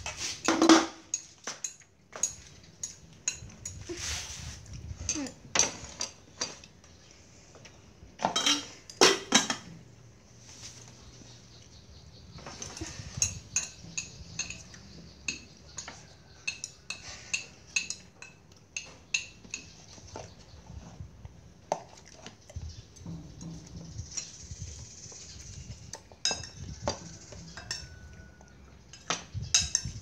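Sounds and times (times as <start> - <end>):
metal spoon clinking on ceramic plate: 1.1 - 3.9, 8.3 - 9.7, 12.6 - 19.8, 26.2 - 30.0.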